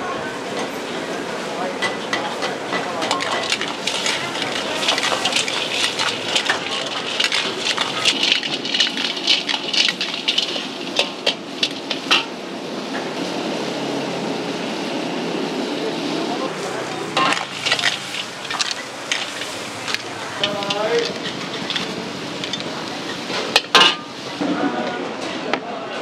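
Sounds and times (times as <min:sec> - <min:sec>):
sauce sizzling in a wok: 0:02.0 - 0:24.4
spatula tossing snail shells: 0:03.0 - 0:12.1, 0:17.0 - 0:23.2
sharp clicks and scrapes: 0:03.0 - 0:12.2, 0:17.2 - 0:23.4.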